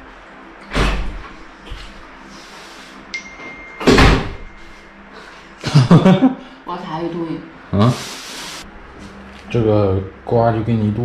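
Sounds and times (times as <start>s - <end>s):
thin high tone: 3.1s - 5.3s.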